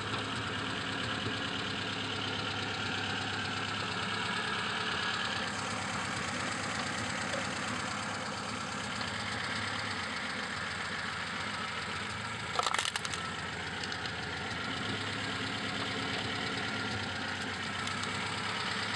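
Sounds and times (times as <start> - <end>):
car engine idling: 0.0 - 18.9
plastic tub cracking under tyre: 12.5 - 13.2.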